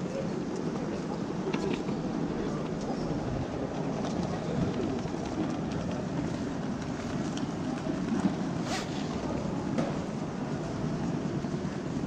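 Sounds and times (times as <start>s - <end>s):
murmur of voices in a hall: 0.0s - 12.0s
suitcase wheels rolling on stone: 0.5s - 9.8s.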